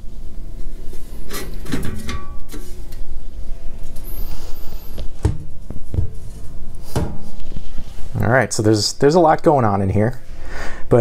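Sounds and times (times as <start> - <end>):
scraping and rubbing on bench: 4.0 - 5.1.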